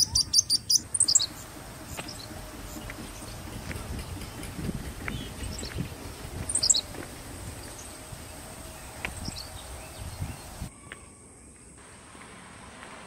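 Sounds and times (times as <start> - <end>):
bird chirps: 0.0 - 3.6, 5.0 - 11.7
high insect drone: 0.0 - 12.8
low thumps: 0.8 - 10.7.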